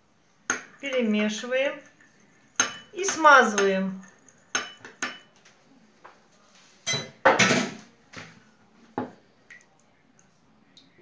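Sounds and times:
utensil clinking against glass bowl: 0.5s - 5.3s, 6.9s - 7.2s.

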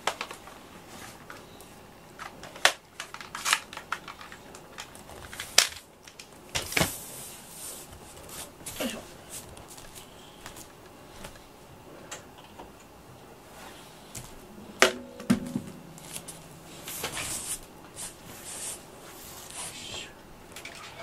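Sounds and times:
dull thump with low ring: 14.8s - 17.6s
sharp knock: 14.8s - 17.6s.

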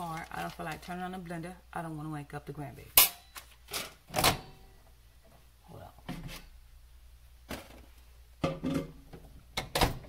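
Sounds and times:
kitchen items clattering: 7.5s - 10.0s.

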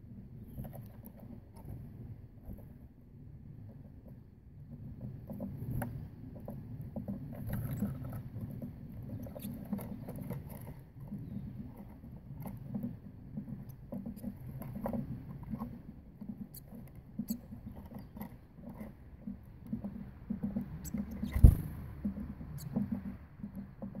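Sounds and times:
light taps and scratches: 0.4s - 2.9s, 3.6s - 24.0s
birds pecking on wooden table: 4.8s - 24.0s
loud thump: 21.3s - 21.8s.

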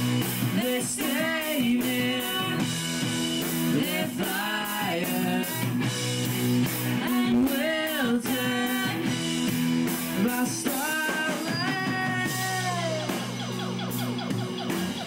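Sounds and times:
drum kit and cymbals: 0.0s - 15.0s
electric guitars: 0.0s - 15.0s
melodic lead line: 8.5s - 15.0s.

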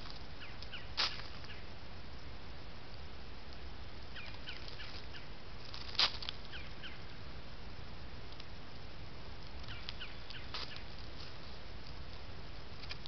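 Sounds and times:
steady low hum: 0.0s - 13.0s
faint bird chirps: 0.4s - 1.8s, 4.1s - 5.4s, 6.5s - 7.2s, 9.6s - 10.9s.

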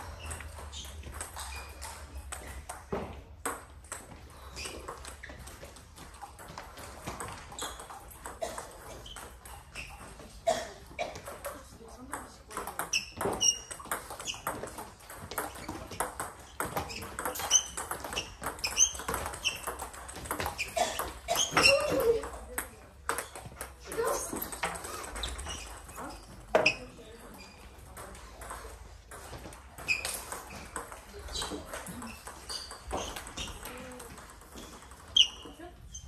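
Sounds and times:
table tennis ball clicking: 12.1s - 26.8s.

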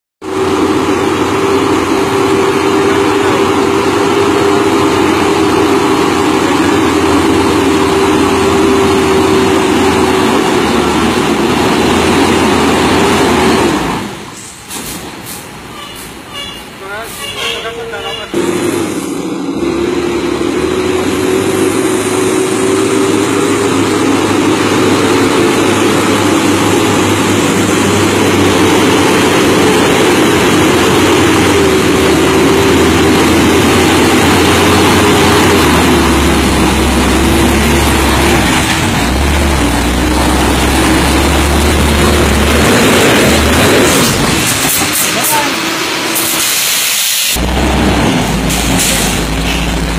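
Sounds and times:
truck diesel engine drone: 0.2s - 49.9s.

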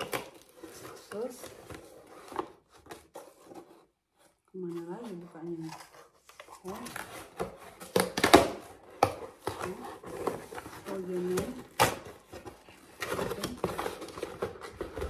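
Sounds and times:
cardboard box rustling and scraping: 0.0s - 8.0s, 8.7s - 15.0s
cardboard snapping and ripping: 5.7s - 15.0s.

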